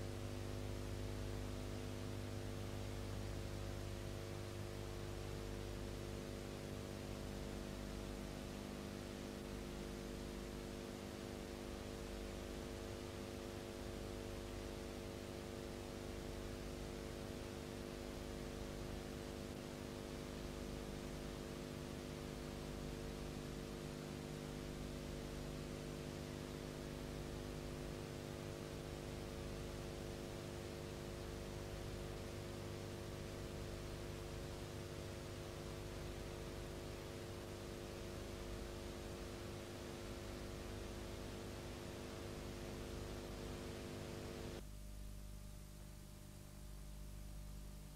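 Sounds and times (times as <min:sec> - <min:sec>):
electrical hum with hiss: 0:00.0 - 0:47.9.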